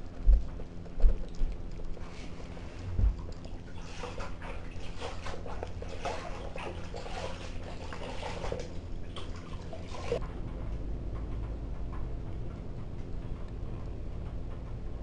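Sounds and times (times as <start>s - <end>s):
kittens chewing and licking food: 0.0s - 10.4s
low bump: 2.8s - 3.2s.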